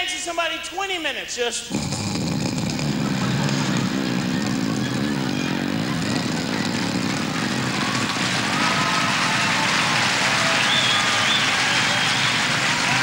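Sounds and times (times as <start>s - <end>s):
man imitating a snore: 1.6s - 8.6s.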